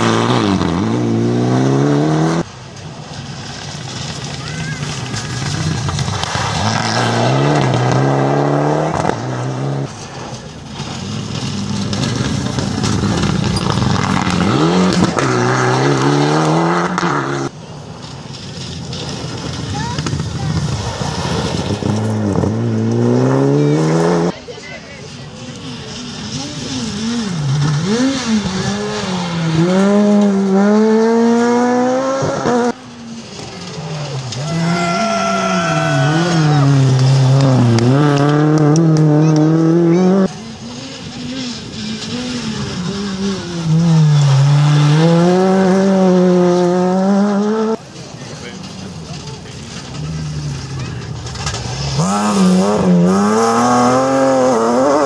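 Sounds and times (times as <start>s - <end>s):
rally car engine revving: 0.0s - 2.6s, 3.2s - 24.5s, 25.3s - 55.0s
second rally car engine approaching: 0.0s - 17.6s, 18.3s - 55.0s
gravel hissing under tyres: 2.4s - 8.0s, 9.2s - 16.3s, 17.1s - 23.1s, 24.3s - 29.6s, 32.7s - 39.2s.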